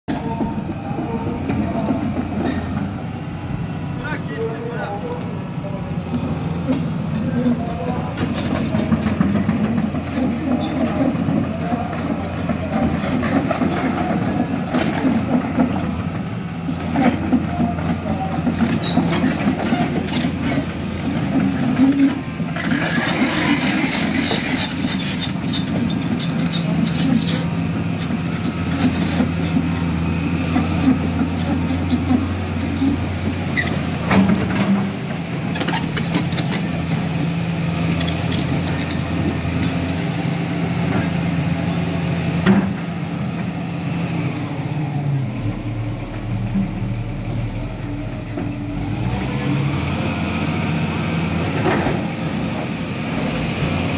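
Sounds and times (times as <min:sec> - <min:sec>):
excavator diesel engine: 0:00.0 - 0:53.9
bucket and tracks clattering on rock: 0:06.7 - 0:39.8.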